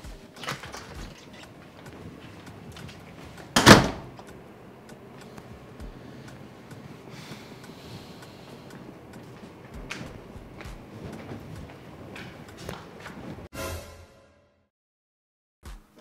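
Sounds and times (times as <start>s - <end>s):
door banging shut: 0.4s - 1.6s, 3.5s - 4.2s.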